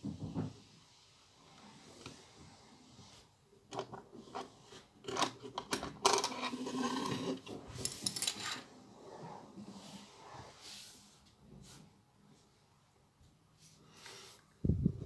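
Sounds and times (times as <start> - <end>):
eraser rubbing and clatter: 3.7 - 8.7.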